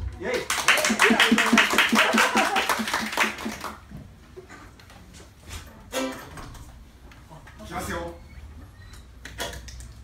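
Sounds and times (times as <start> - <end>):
small audience clapping: 0.2 - 4.1.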